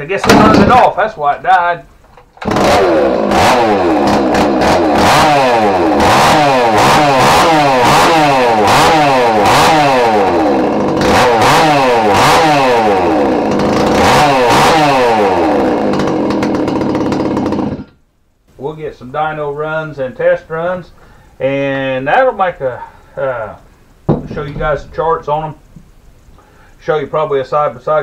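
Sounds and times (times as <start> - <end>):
chainsaw engine revving: 2.4 - 18.0.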